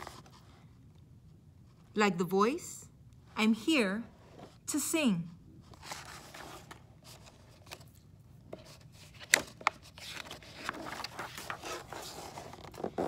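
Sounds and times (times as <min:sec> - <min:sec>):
paper page rustling: 0:05.6 - 0:13.0.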